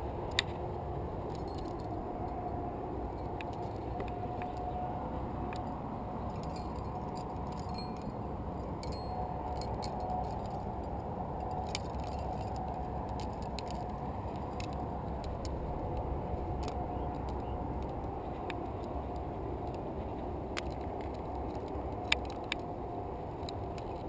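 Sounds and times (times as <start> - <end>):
wind rumble on microphone: 0.0 - 24.0
carabiners clinking together: 0.2 - 2.4, 5.5 - 15.7.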